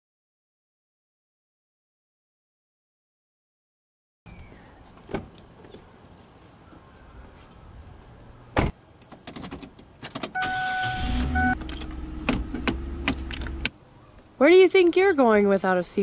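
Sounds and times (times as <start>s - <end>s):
car engine rumble: 8.0s - 13.8s
car door shutting: 8.6s - 13.7s
electronic warning chime: 10.4s - 11.6s.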